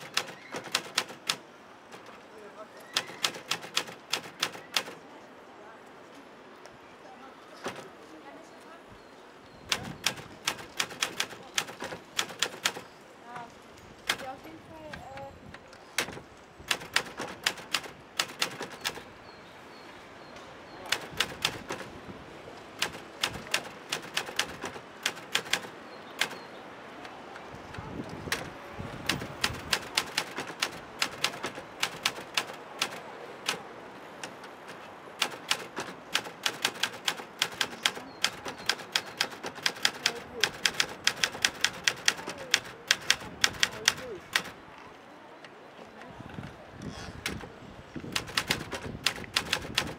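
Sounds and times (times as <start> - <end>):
typewriter key clacks: 0.0 - 2.1, 3.0 - 5.0, 9.7 - 12.9, 16.0 - 19.0, 20.9 - 21.9, 22.8 - 26.5, 28.2 - 44.5, 47.2 - 49.9.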